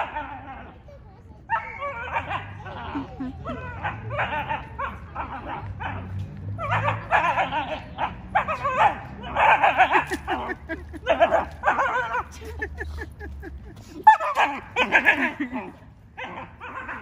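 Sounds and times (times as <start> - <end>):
dog barking and yipping: 3.5 - 12.3, 14.0 - 15.5, 16.2 - 17.0.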